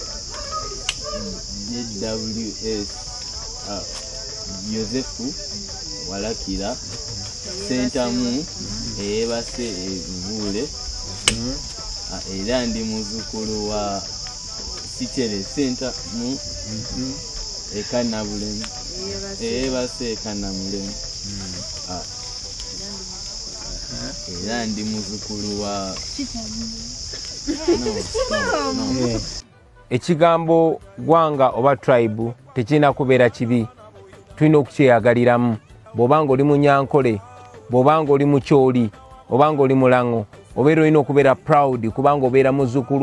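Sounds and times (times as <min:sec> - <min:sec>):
crickets chirring: 0:00.0 - 0:29.4
sharp click: 0:11.2 - 0:11.8.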